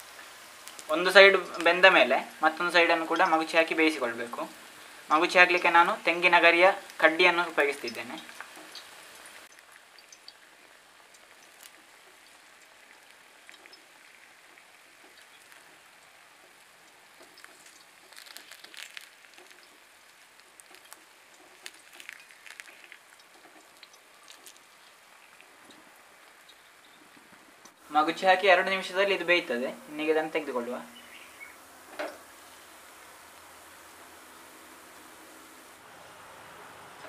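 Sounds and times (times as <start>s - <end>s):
small crackles and pops: 0.0s - 27.8s
batter sizzling in oil: 0.0s - 37.0s.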